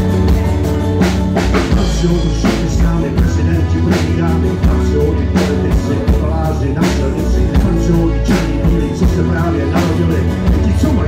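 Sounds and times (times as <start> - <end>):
bass guitar: 0.0 - 11.0
drum kit beat: 0.0 - 11.0
electric guitar: 0.0 - 11.0.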